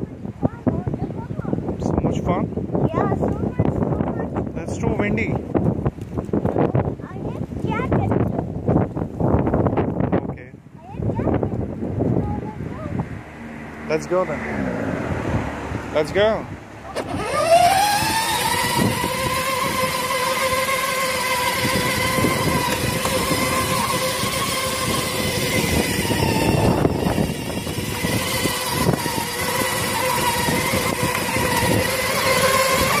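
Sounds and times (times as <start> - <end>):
electric motor whining: 16.9 - 33.0
plastic wheels rumbling on concrete: 16.9 - 33.0.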